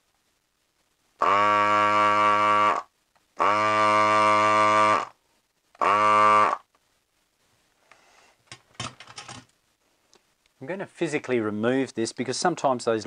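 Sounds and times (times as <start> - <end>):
desoldering vacuum pump buzzing: 1.2 - 5.1, 5.8 - 6.6.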